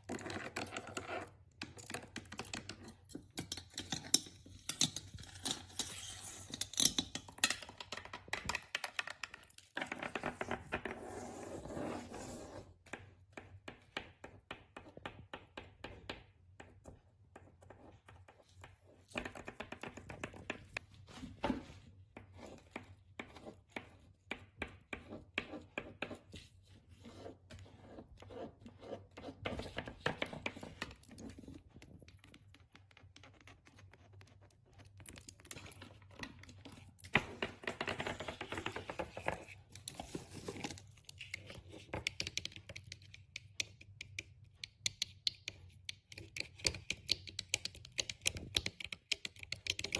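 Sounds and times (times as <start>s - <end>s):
scratchy rubbing: 10.3s - 12.8s, 24.9s - 31.6s
fingernails tapping on objects: 42.0s - 49.9s.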